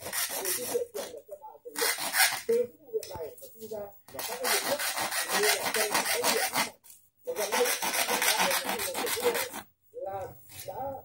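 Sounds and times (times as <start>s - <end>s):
hacksaw sawing plastic: 0.0s - 1.1s, 1.8s - 2.5s, 4.1s - 6.8s, 7.4s - 9.6s.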